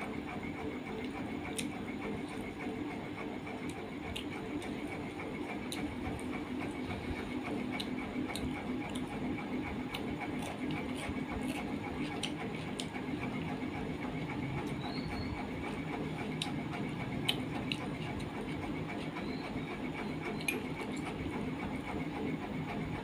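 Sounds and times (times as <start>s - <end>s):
steady mechanical hum: 0.0s - 23.0s
person chewing: 0.9s - 2.5s, 3.5s - 13.8s, 14.6s - 19.2s, 20.3s - 21.2s.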